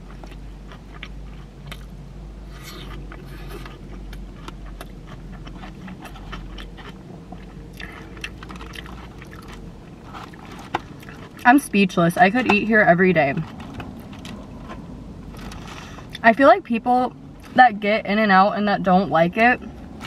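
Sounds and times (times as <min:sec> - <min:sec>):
person chewing food: 0:00.0 - 0:11.5, 0:13.4 - 0:16.2.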